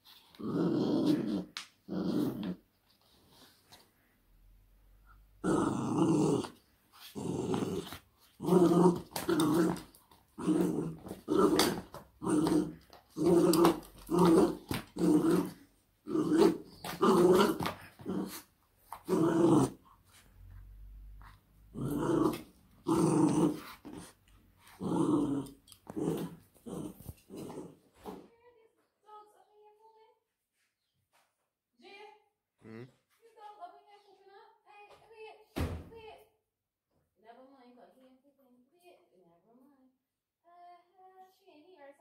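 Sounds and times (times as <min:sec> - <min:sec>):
puppy play-growling: 0:00.0 - 0:03.8, 0:05.4 - 0:28.2.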